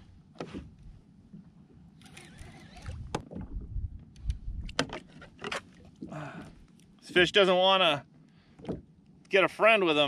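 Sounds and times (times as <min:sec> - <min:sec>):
low rumble: 0:02.9 - 0:04.8.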